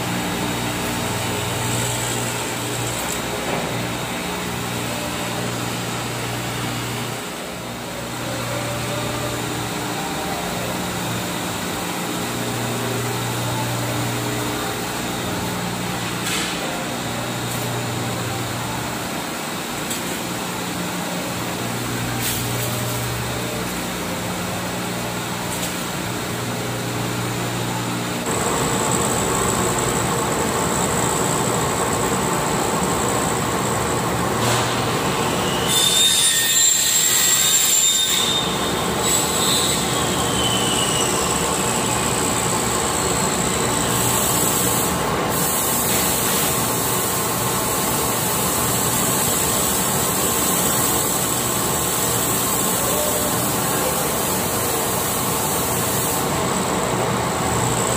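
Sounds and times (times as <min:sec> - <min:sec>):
machine motor hum: 0:20.4 - 0:35.5
steady high whine: 0:26.2 - 0:35.7.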